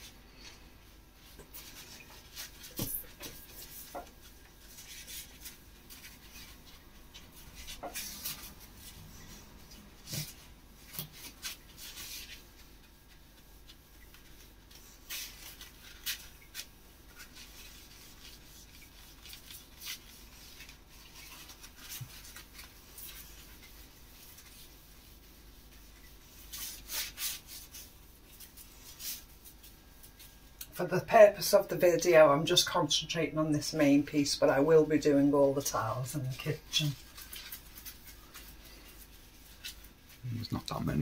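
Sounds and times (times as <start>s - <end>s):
scrubbing on wall tiles: 1.2s - 30.6s.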